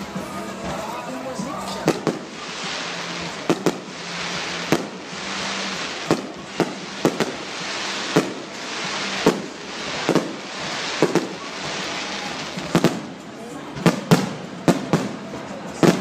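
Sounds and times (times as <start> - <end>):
fireworks bangs: 0.0 - 16.0
steady hiss: 1.3 - 13.3.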